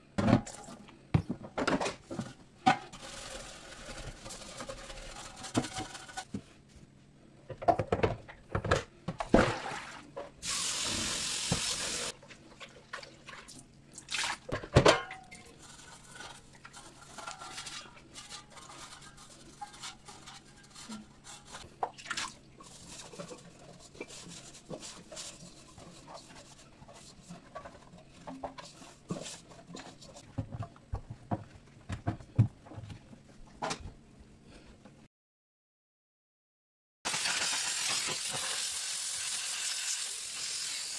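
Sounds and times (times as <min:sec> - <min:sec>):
rinsing and wiping: 0:15.5 - 0:30.3
brush scrubbing: 0:22.6 - 0:30.2.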